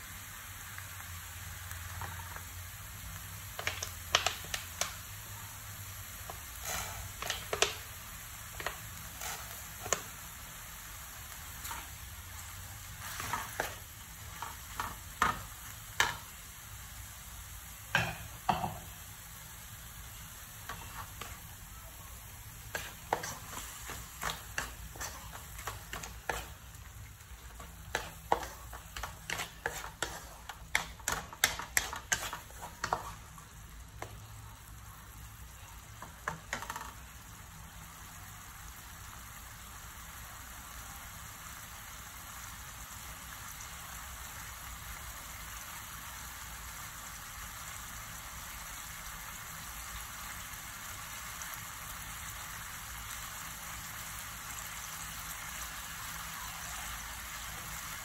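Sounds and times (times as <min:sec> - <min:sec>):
sauce sizzling: 0:00.0 - 0:58.0
wooden spatula scraping a wok: 0:06.4 - 0:07.8, 0:08.5 - 0:10.1, 0:11.5 - 0:12.0, 0:12.9 - 0:15.4, 0:20.6 - 0:21.4, 0:22.6 - 0:33.5.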